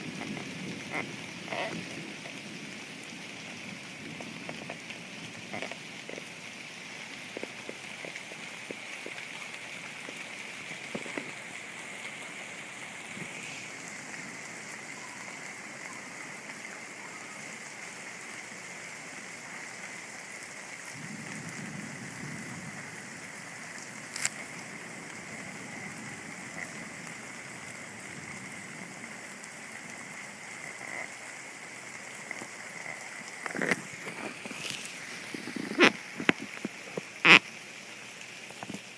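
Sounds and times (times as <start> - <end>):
steady rain: 0.0 - 38.9
low thunder rumble: 20.9 - 30.1.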